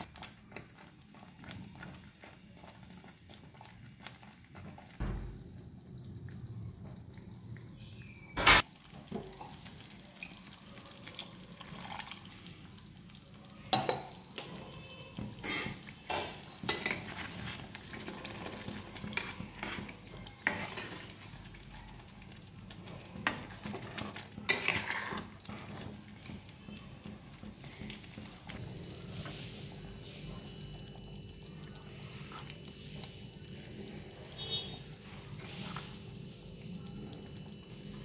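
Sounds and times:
metal ladle scraping pan: 15.4s - 17.6s, 19.1s - 21.1s, 23.3s - 25.9s.

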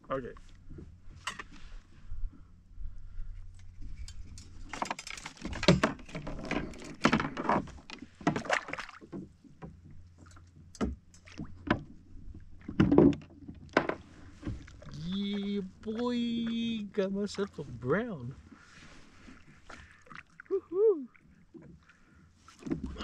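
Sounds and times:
knocks and bumps on kayak: 12.6s - 14.8s.

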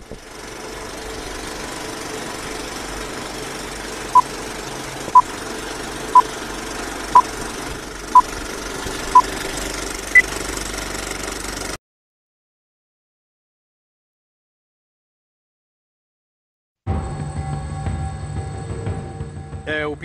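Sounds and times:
film projector clattering: 0.0s - 11.8s.

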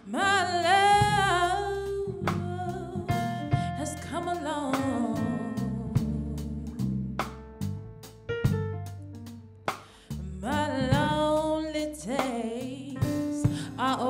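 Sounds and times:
woman singing: 0.0s - 6.9s, 10.2s - 14.0s
soul band playing: 0.0s - 14.0s.

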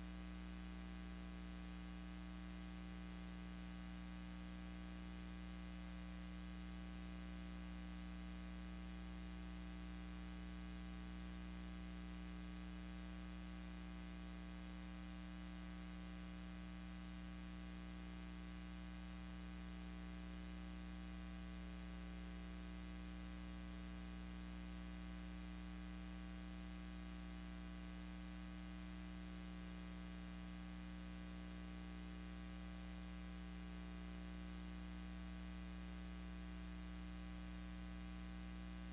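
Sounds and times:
electrical mains hum: 0.0s - 38.9s.

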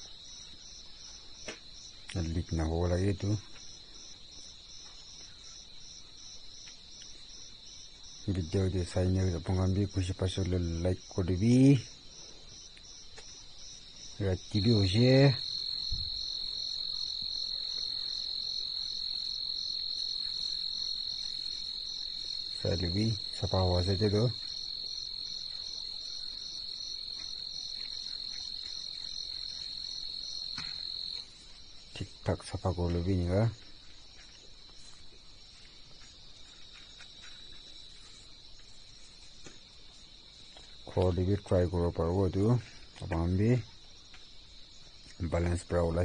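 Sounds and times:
insect high-pitched trill: 0.0s - 46.0s
pulsing insect chirp: 0.0s - 46.0s
faint scuffs: 32.9s - 40.9s.

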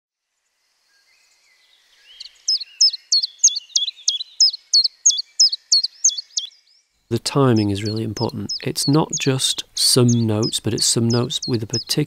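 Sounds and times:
songbird singing high notes: 2.0s - 12.0s.

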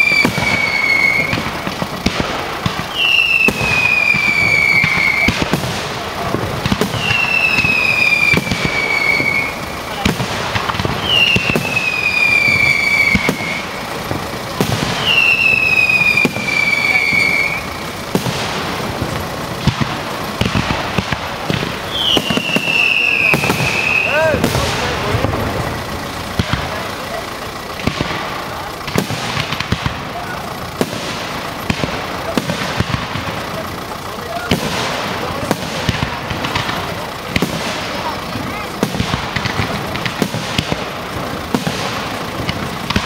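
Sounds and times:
falling firework whistle: 0.0s - 6.0s, 6.6s - 25.3s
fireworks banging and crackling: 0.0s - 43.0s.

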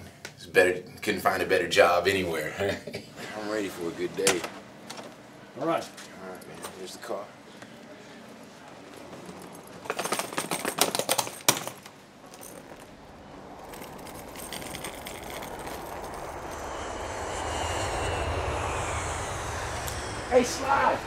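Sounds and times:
vehicle rumble: 12.1s - 21.0s.

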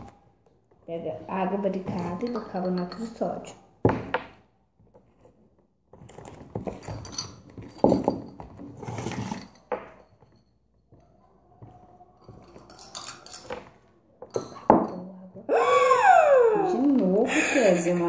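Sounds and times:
plastic spoons scraping plastic tubs: 5.0s - 10.3s.

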